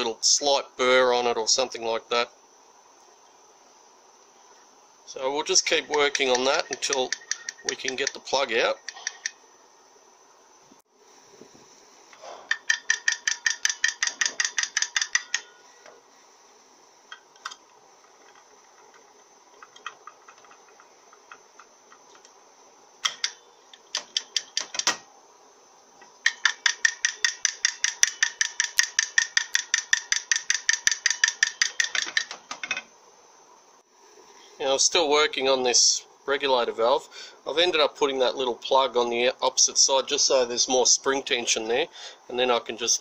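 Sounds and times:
hand tool tapping on metal: 5.8s - 8.2s, 8.8s - 9.4s, 12.5s - 15.5s, 23.0s - 25.0s, 26.2s - 32.8s.

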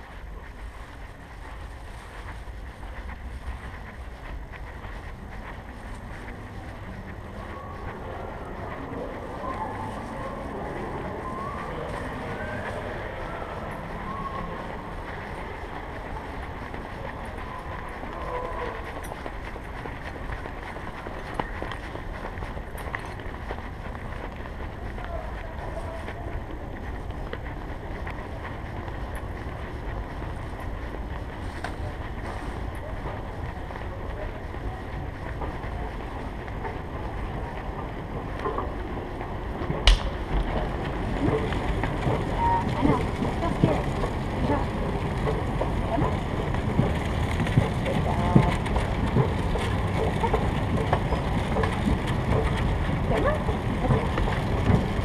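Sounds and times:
low rumble of camera movement: 0.0s - 55.0s
store ambience: 0.0s - 55.0s
sharp click: 39.9s - 40.2s.

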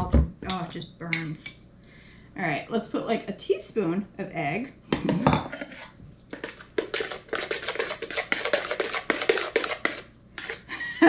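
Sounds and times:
utensil scraping plastic bowl: 5.1s - 10.7s.

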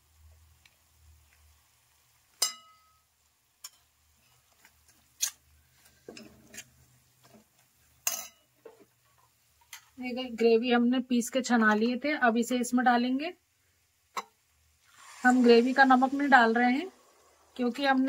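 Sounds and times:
onions frying: 0.0s - 18.0s
metallic clinks against pan: 2.4s - 3.0s, 8.0s - 8.5s
spatula scraping in pan: 3.6s - 10.0s, 14.8s - 18.0s.

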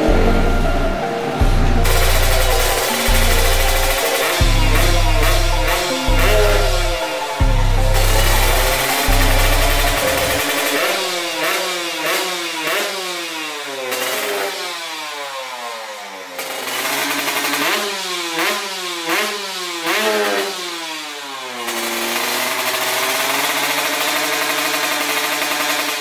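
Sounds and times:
motorcycle engine idling: 0.0s - 13.0s
motorcycle engine revving: 0.0s - 26.0s.

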